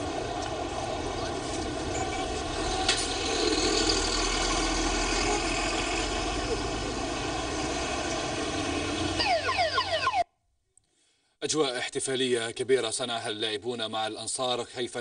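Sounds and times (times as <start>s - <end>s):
bus engine running: 0.0s - 10.0s
street noise: 0.0s - 10.3s.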